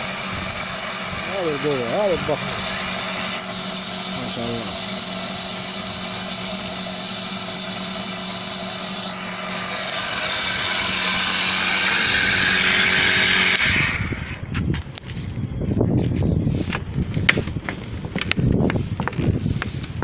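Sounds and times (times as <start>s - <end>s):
sprayer pump humming and hissing: 0.0s - 15.3s.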